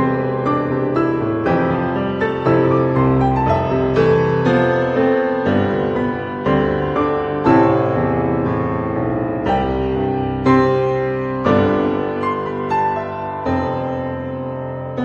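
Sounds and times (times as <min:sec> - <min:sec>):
gentle instrumental music: 0:00.0 - 0:15.0.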